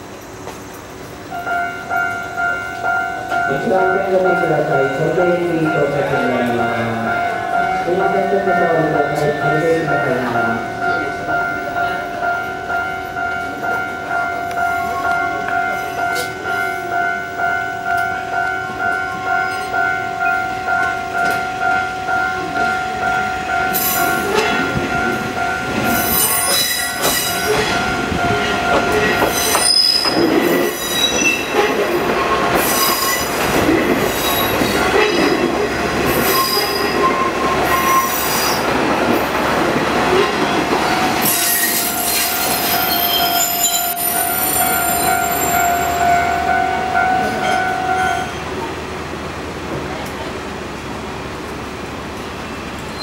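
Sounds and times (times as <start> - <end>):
warning bell ringing: 1.3 - 35.5, 40.1 - 48.7
train wheels knocking over rail joints: 23.7 - 42.8
wheel flange squeals: 29.4 - 33.4, 36.1 - 38.6.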